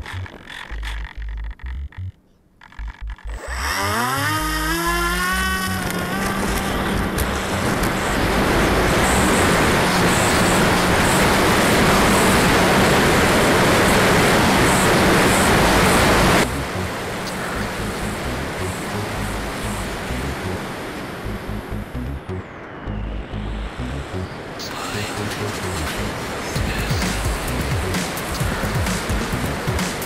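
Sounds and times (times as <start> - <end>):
model plane motor whine: 3.3 - 16.4.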